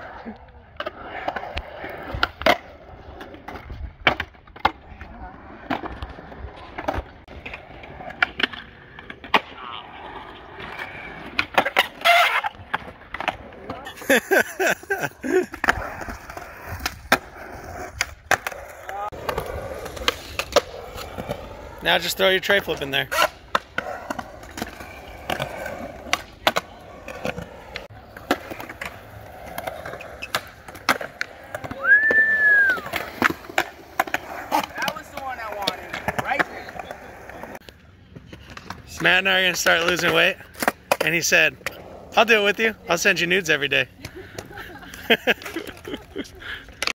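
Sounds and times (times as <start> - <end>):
skateboard wheels rolling on concrete: 0.0 - 46.9
skateboard clacking on ground: 14.9 - 21.8, 22.6 - 42.0.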